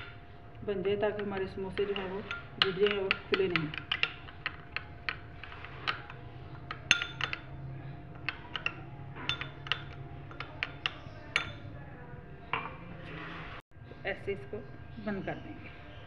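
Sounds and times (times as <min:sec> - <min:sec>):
metal spoon clinking on glass bowl: 0:01.0 - 0:11.8.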